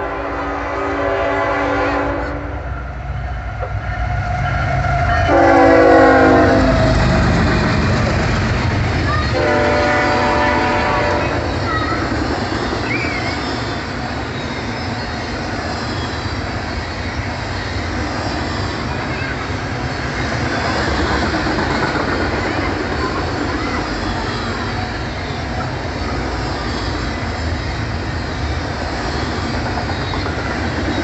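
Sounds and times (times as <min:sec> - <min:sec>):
locomotive horn blasts: 0:00.0 - 0:02.6, 0:03.4 - 0:06.9, 0:09.3 - 0:11.3
train rumble and wheel clatter: 0:00.0 - 0:31.0.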